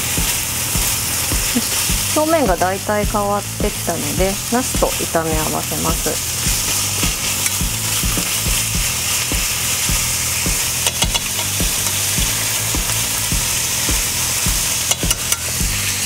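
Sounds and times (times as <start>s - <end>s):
meat and vegetables sizzling in a pan: 0.0s - 16.0s
chopsticks knocking against a pan: 6.5s - 15.4s.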